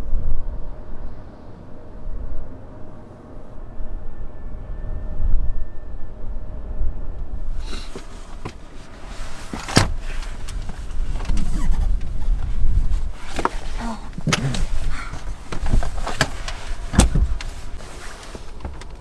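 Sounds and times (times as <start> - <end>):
car rumbling: 0.0 - 19.0
rush of outside air: 0.0 - 19.0.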